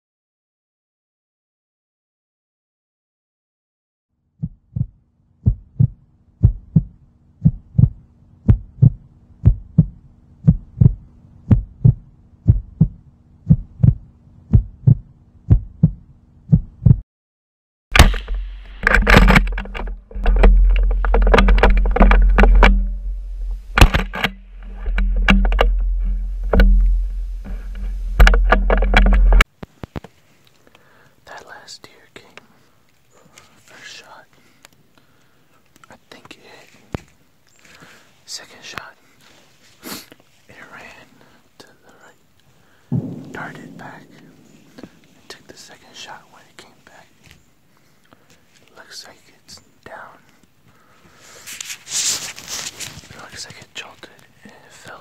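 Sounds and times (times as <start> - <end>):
heartbeat double thumps: 4.4 - 17.0, 18.0 - 29.4, 42.9 - 45.5
loud bang: 17.9 - 29.4, 42.9 - 45.9
camera handling rumbling and scraping: 18.0 - 30.2.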